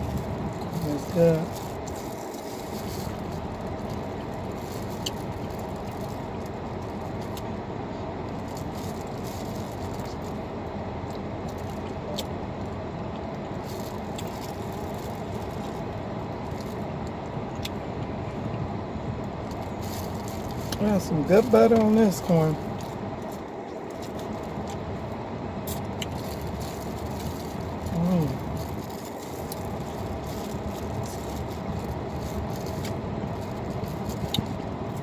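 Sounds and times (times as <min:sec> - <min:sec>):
corn being bitten and chewed: 0:00.0 - 0:07.5, 0:13.1 - 0:17.8, 0:25.6 - 0:35.0
car cabin background noise: 0:00.0 - 0:35.0.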